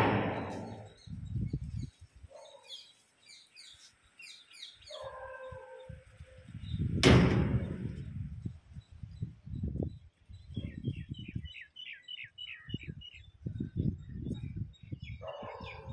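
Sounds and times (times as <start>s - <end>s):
low thumps: 0.0s - 1.2s, 6.9s - 8.4s
small birds chirping: 0.7s - 7.0s, 8.0s - 15.9s.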